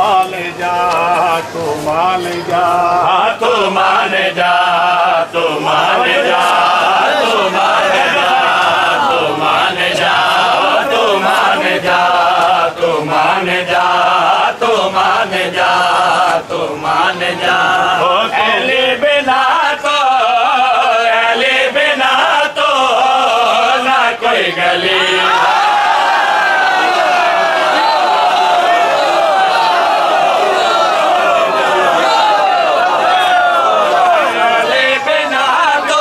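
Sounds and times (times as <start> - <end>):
men chanting in unison: 0.0 - 36.0.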